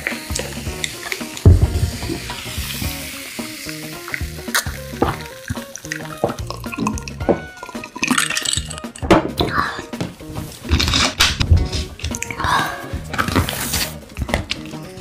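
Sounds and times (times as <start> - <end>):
loud thud: 1.5 - 3.1
cola fizzing over ice: 2.0 - 9.7.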